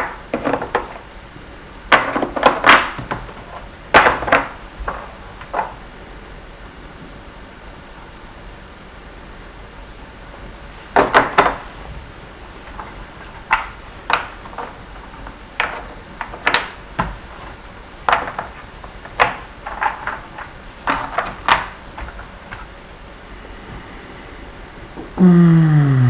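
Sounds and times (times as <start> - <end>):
wooden blocks knocking and clacking: 0.0 - 1.0, 1.9 - 5.8, 11.0 - 11.6, 12.7 - 22.7.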